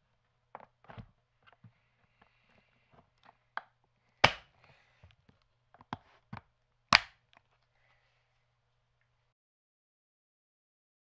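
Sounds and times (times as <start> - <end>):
case latches snapping: 3.6 - 4.5, 6.9 - 7.2
plastic case lid clicks and knocks: 5.8 - 7.1.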